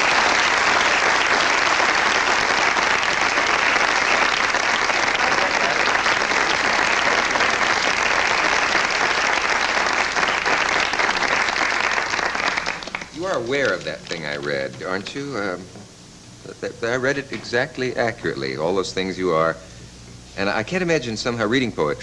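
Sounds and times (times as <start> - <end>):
studio audience applause: 0.0 - 14.1.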